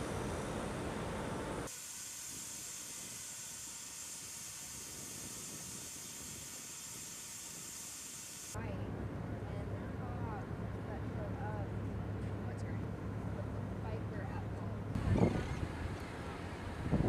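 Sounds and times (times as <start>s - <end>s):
steady high hiss: 0.0s - 8.6s
low outdoor rumble: 8.5s - 17.0s.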